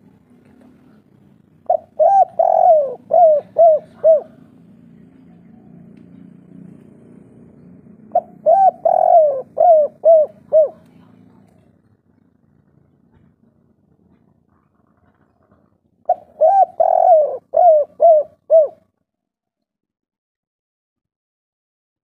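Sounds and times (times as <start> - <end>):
dove cooing: 1.6 - 4.6, 8.0 - 11.0, 16.0 - 18.9.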